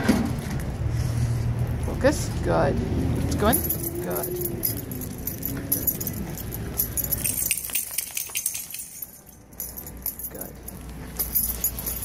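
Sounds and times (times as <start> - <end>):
light metal jingling and clinking: 3.2 - 12.0.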